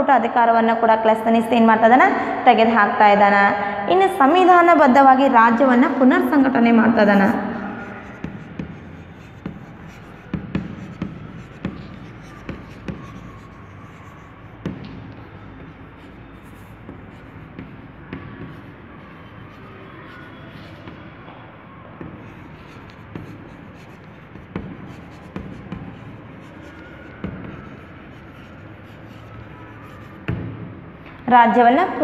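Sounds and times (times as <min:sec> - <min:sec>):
chalk scratching on blackboard: 0:06.2 - 0:21.3, 0:22.0 - 0:30.5
chalk tapping on board: 0:07.2 - 0:21.0, 0:22.0 - 0:30.6.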